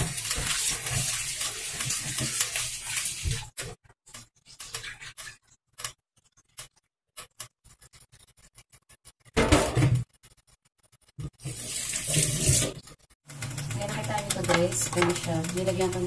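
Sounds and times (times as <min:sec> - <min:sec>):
tap water running into steel bowl: 0:00.0 - 0:03.4
water splashes and drips: 0:00.0 - 0:03.6.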